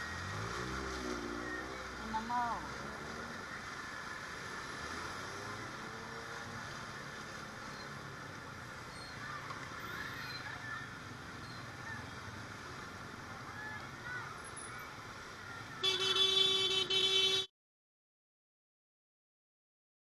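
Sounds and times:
floodwater splashing: 0:00.0 - 0:15.4
motorcycle and car engines: 0:00.0 - 0:17.5.

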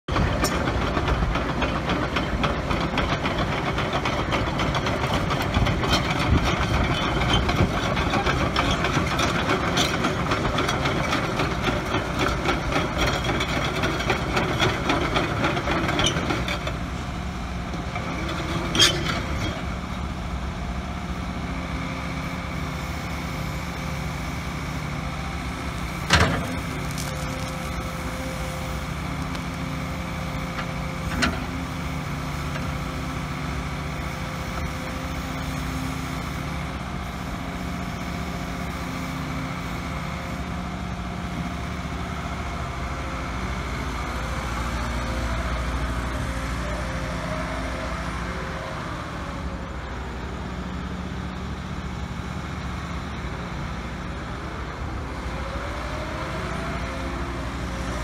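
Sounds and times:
excavator diesel engine running: 0:00.1 - 0:58.0.

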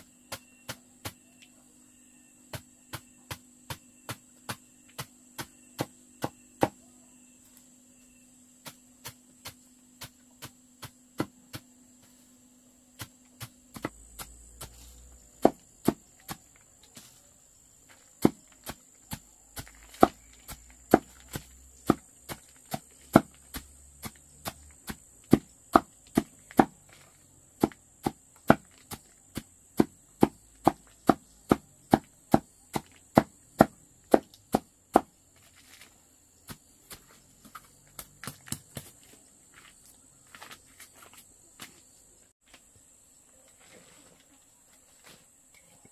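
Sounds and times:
blade chopping on wood: 0:13.0 - 0:17.1, 0:17.9 - 0:27.0, 0:27.6 - 0:35.2.

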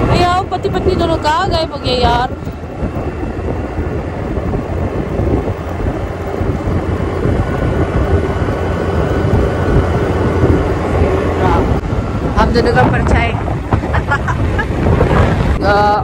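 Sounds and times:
motor scooter engine hum: 0:00.0 - 0:16.0
wind rushing over microphone: 0:00.0 - 0:16.0.

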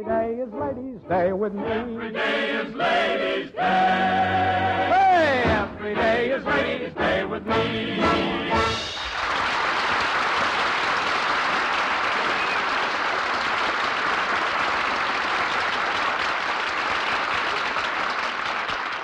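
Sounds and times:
audience applauding: 0:08.8 - 0:19.0.

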